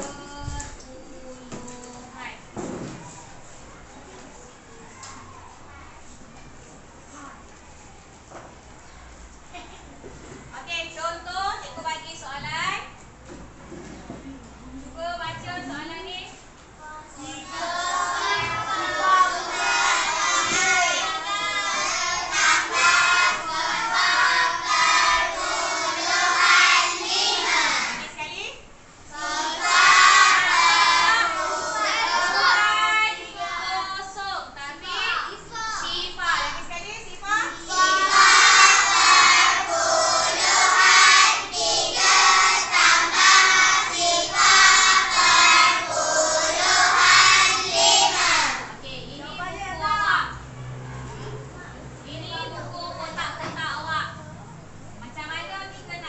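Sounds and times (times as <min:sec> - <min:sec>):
children singing in unison: 0:17.4 - 0:28.0, 0:29.1 - 0:33.7, 0:37.6 - 0:48.7.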